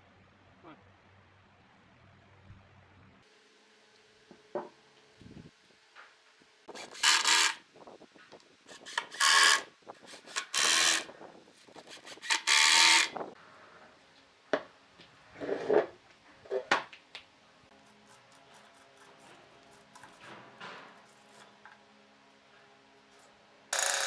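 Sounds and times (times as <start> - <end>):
impact driver driving screws: 10.2 - 11.1, 11.9 - 13.1.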